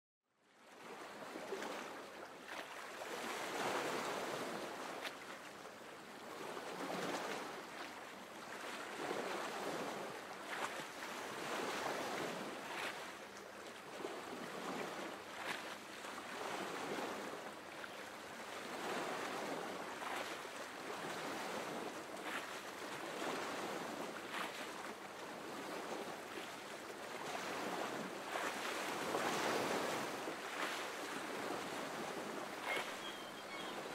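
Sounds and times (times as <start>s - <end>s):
sea surf washing: 27.2s - 33.9s.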